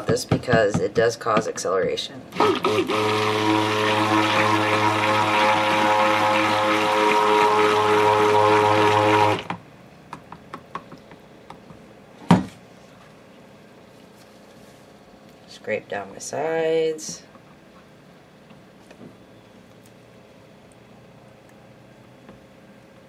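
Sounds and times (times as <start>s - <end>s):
stick blender motor hum: 2.3s - 9.6s.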